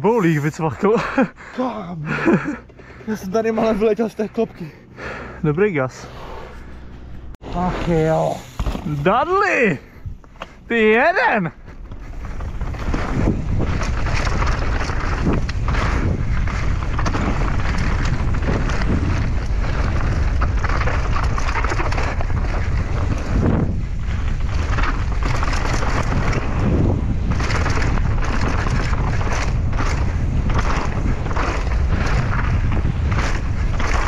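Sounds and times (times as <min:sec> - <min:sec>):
heavy wind noise on microphone: 0:05.0 - 0:10.8, 0:11.6 - 0:34.0
bike knocking and rattling: 0:08.0 - 0:34.0.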